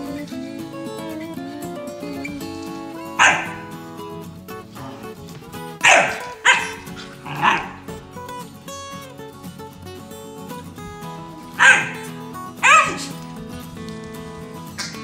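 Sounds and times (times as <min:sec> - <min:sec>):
dogs play-barking: 0:02.3 - 0:08.6, 0:10.8 - 0:15.0.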